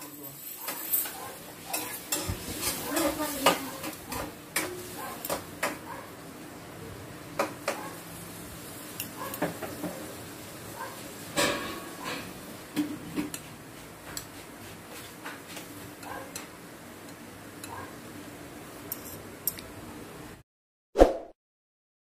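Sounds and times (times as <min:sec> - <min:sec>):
cutlery clinking on glass bowls: 0:00.0 - 0:05.4, 0:09.0 - 0:10.0, 0:18.9 - 0:19.6.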